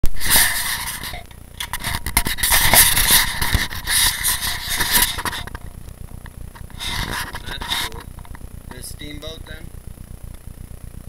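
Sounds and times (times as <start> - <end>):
hand rubbing against camera: 0.2 - 5.7, 6.6 - 8.2.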